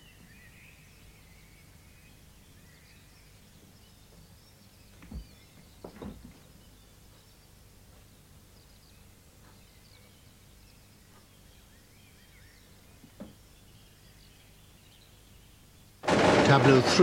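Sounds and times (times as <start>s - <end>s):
low steady hum: 0.0s - 17.0s
soft knock: 13.0s - 13.4s.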